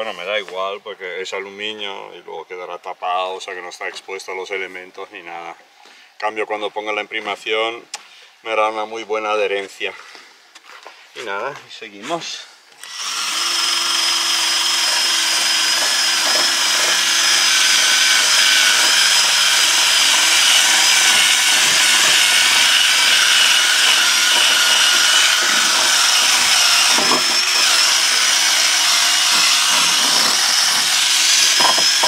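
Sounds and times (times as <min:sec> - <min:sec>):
drill wire brush scrubbing metal: 0:12.8 - 0:32.0
sharp knocks: 0:29.3 - 0:32.0.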